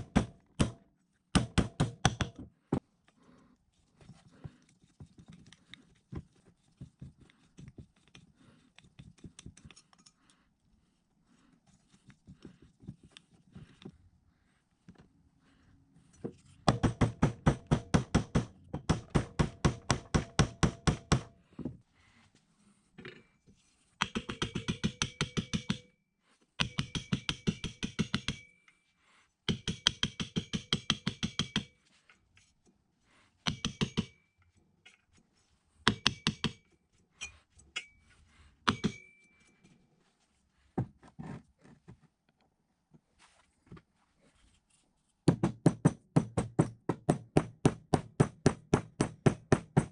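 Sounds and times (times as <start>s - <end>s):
hammer tapping on steel: 24.0s - 26.0s, 26.6s - 28.6s, 29.5s - 31.8s, 33.4s - 34.3s, 35.9s - 36.7s, 38.7s - 39.2s.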